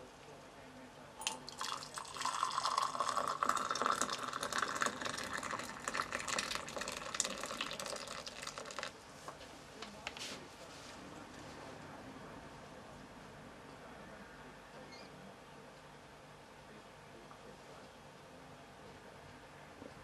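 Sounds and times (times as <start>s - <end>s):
liquid pouring into mug: 1.2s - 9.0s.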